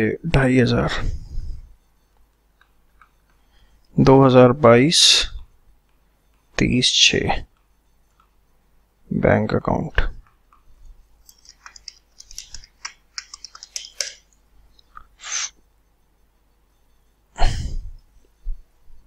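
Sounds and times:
stylus tapping on pen tablet: 10.2 - 14.4.

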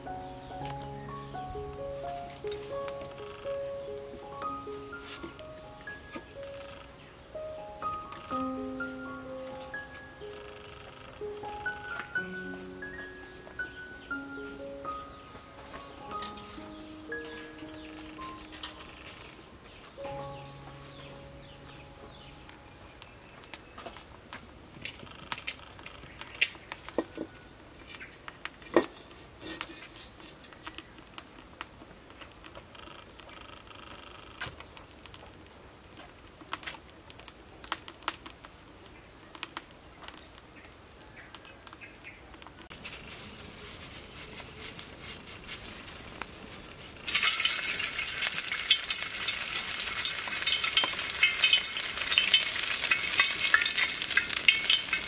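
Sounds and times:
oil hissing: 42.8 - 55.0
food sizzling in hot oil: 46.8 - 55.0
wok clinking: 47.1 - 55.0.

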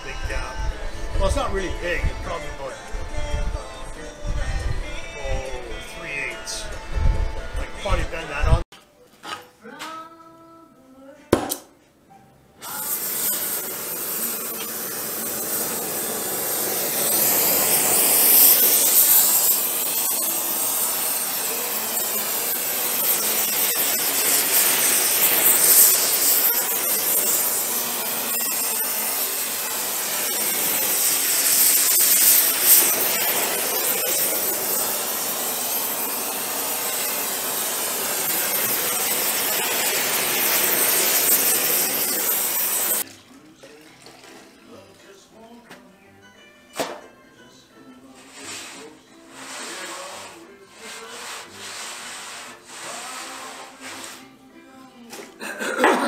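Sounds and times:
torch flame hissing: 12.6 - 43.1.

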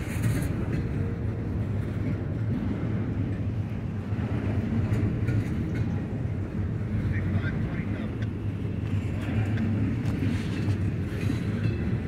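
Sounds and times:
freight train wheels rumbling: 0.0 - 12.0.

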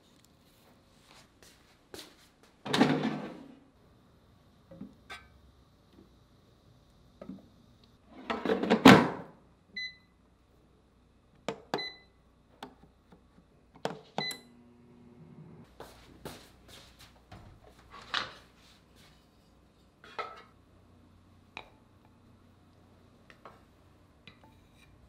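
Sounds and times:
short beeps from control panel: 9.8 - 10.1, 11.8 - 12.1.

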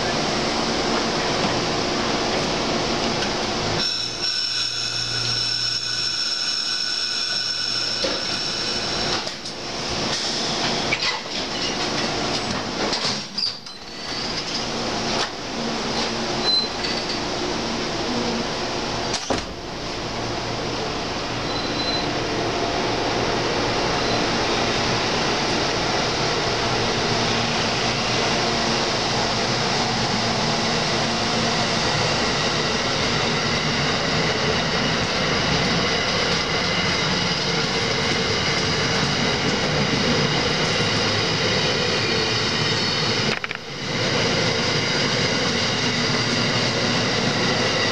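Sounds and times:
train cars rolling on rails: 0.0 - 47.9.

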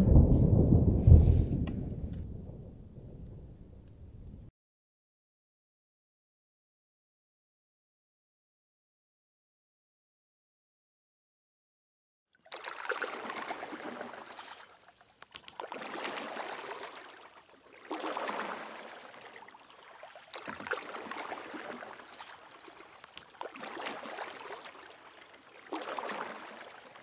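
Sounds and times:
small waves washing ashore: 12.4 - 27.0.

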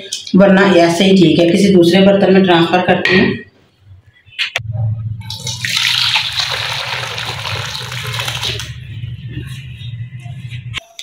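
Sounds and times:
steady low hum: 3.8 - 11.0
broth pouring into a pan: 5.3 - 8.8.

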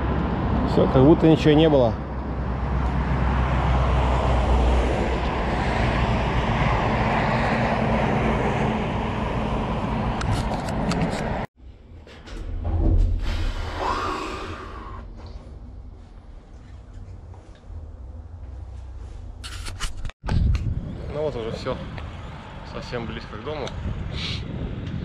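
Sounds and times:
road traffic: 0.0 - 11.9, 13.4 - 25.0
wind rumbling on microphone: 2.0 - 25.0
low hum inside a lift: 11.6 - 19.5.

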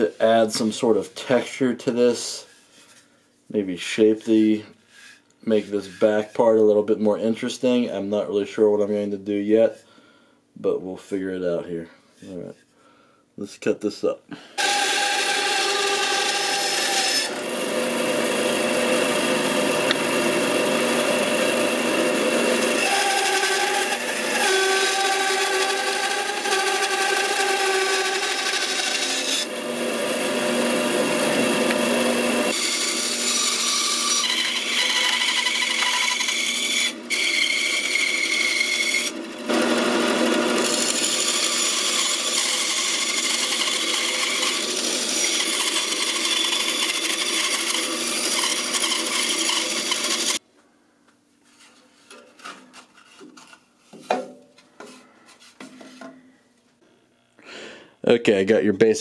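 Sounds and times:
bandsaw cutting wood: 14.6 - 50.4.

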